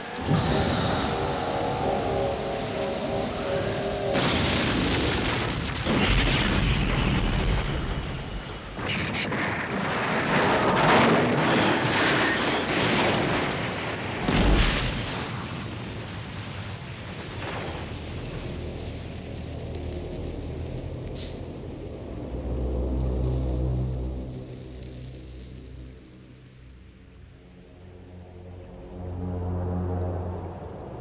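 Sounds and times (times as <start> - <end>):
steady rain-like hiss: 0.0 - 8.8, 13.7 - 31.0
explosion booms with rumbling: 0.2 - 16.5.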